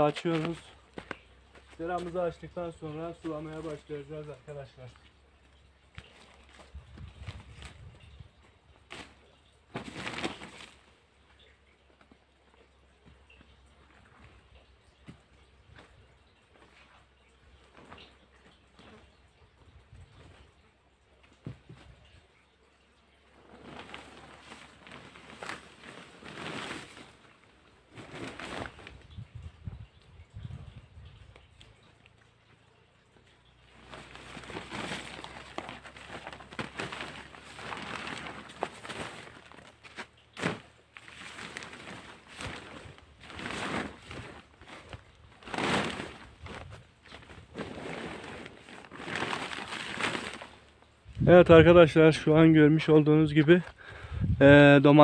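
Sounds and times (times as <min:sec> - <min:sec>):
plastic sheeting rustling: 0:00.0 - 0:05.0, 0:08.8 - 0:11.1, 0:23.3 - 0:29.6, 0:33.7 - 0:55.0.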